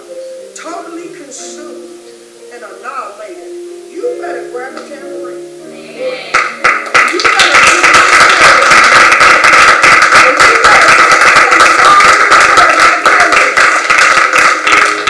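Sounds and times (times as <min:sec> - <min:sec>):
rapid hand clapping: 0:06.4 - 0:15.0.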